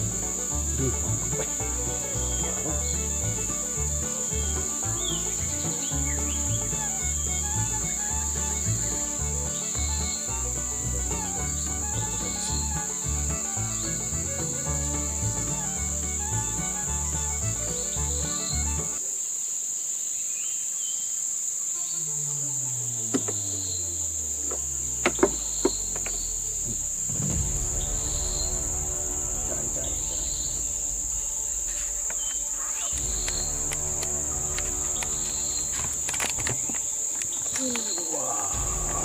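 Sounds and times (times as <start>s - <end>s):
music with pulsing bass: 0.0s - 19.0s, 38.6s - 39.0s
high-pitched insect drone: 0.0s - 39.0s.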